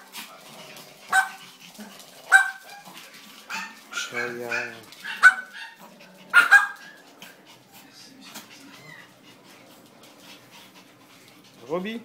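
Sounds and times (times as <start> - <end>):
small dog yapping: 2.3 - 7.0.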